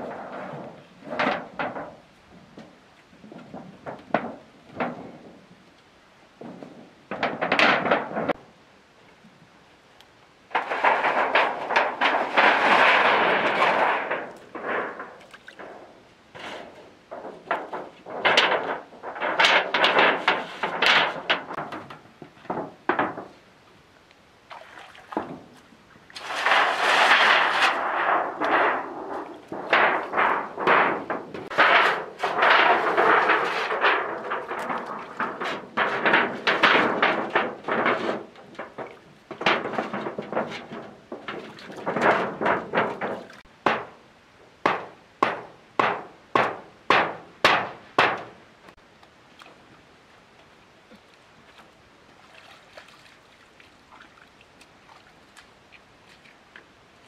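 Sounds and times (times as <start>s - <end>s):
metal sheets clattering and rattling: 0.0s - 5.4s, 6.4s - 8.4s, 10.5s - 23.4s, 26.2s - 44.0s, 44.6s - 48.4s.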